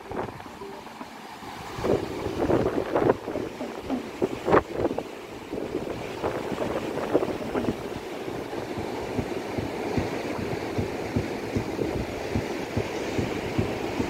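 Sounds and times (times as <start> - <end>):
surf breaking on shore: 0.0 - 14.0
wind buffeting microphone: 0.0 - 14.0.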